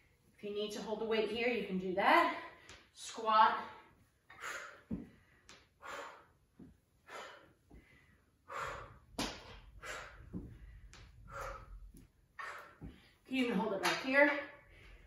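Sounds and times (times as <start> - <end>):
woman breathing hard: 3.8 - 13.3, 14.6 - 15.0.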